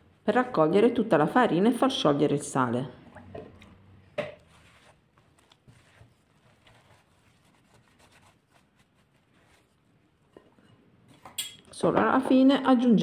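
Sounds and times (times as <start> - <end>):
wooden spoon stirring dough: 4.2 - 11.4.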